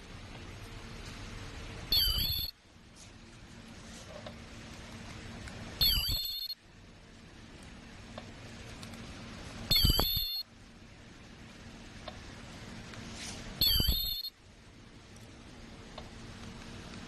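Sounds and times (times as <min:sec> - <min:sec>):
high-pitched machine burst: 0:01.9 - 0:02.5, 0:05.8 - 0:06.6, 0:09.7 - 0:10.4, 0:13.6 - 0:14.3.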